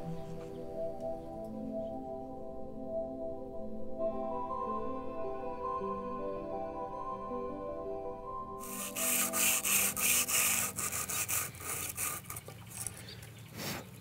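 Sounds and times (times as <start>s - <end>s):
soft background music: 0.0s - 12.3s
sandpaper rasping on wood: 8.6s - 12.9s.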